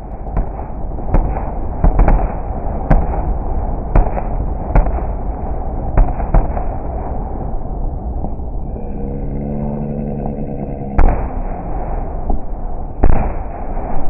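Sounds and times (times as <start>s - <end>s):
fireworks bangs: 0.0s - 7.2s, 11.0s - 14.0s
continuous low rumble: 0.0s - 14.0s.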